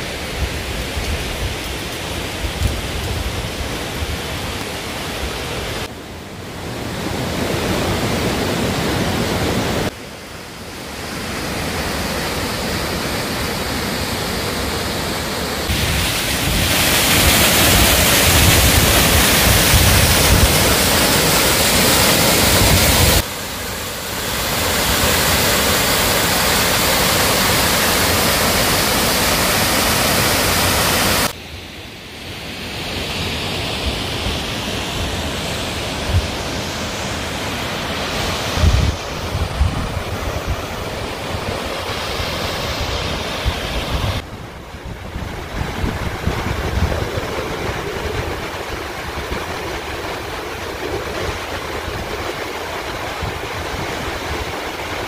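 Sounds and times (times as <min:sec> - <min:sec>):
water cascading over boulders: 0:00.0 - 0:31.4, 0:45.5 - 0:55.0
waterfall rushing: 0:00.0 - 0:55.0.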